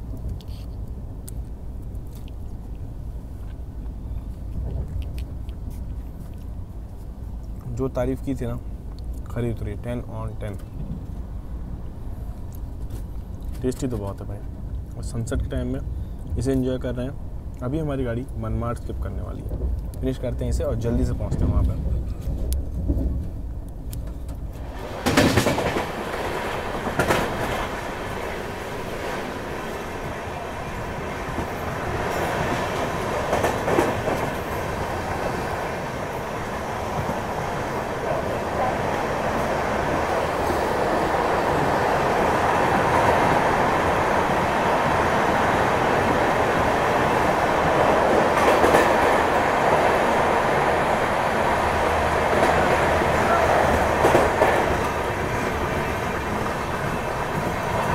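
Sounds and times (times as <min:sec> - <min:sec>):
train rumble inside coach: 0:00.0 - 0:57.9
wheels clacking over rail joints: 0:21.3 - 0:57.9.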